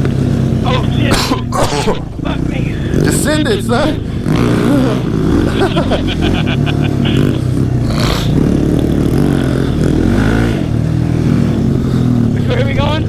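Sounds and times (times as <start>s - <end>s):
atv engine revving: 0.0s - 13.0s.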